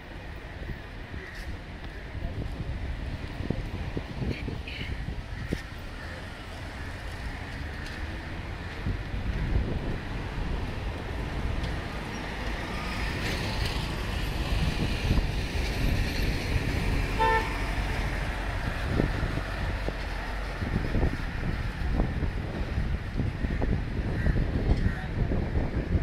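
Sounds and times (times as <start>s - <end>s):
street traffic: 0.0s - 26.0s
vehicle horn toot: 17.2s - 17.6s.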